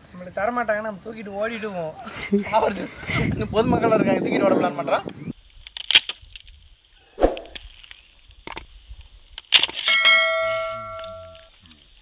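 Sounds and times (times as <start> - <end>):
bell-like chime ringing: 9.8 - 11.5.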